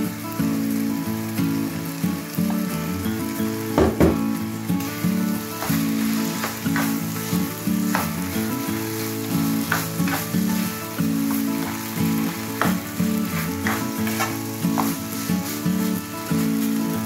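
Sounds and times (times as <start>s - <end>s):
rice sizzling in a frying pan: 0.0s - 17.0s
spatula scraping a pan: 5.6s - 16.8s.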